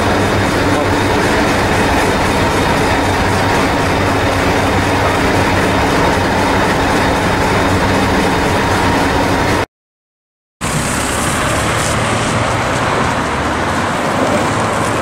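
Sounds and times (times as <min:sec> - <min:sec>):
diesel engine idling: 0:00.0 - 0:09.6.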